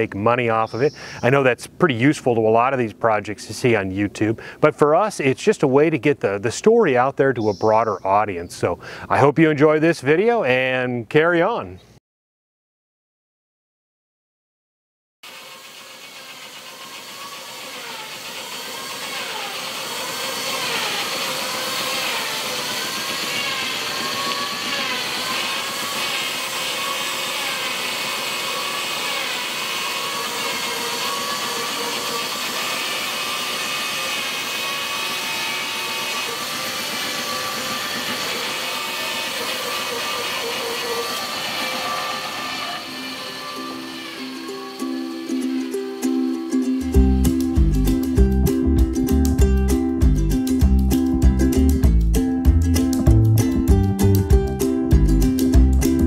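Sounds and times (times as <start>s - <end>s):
bandsaw cutting wood: 15.2s - 56.0s.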